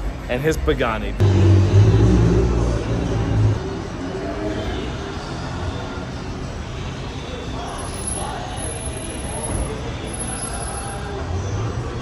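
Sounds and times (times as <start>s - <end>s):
vehicle engine rumbling: 1.2s - 4.4s.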